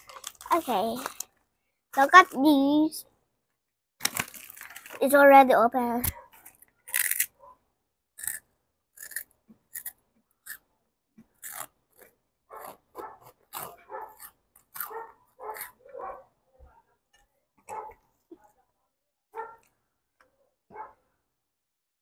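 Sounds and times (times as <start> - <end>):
child crunching crisp snack: 0.0 - 1.4, 4.0 - 5.1, 6.8 - 7.3, 8.2 - 8.4, 9.0 - 10.6, 11.4 - 15.7.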